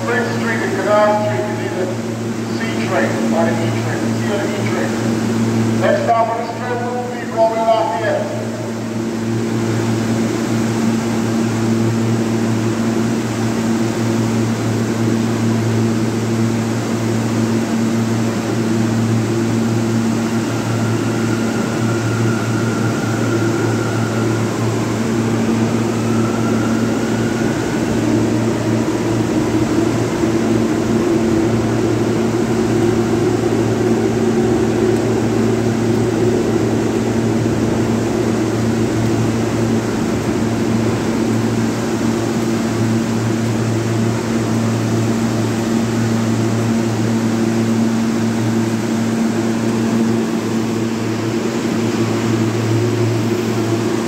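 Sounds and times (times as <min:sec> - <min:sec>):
subway train hum: 0:00.0 - 0:54.0
faint high whine: 0:18.9 - 0:54.0.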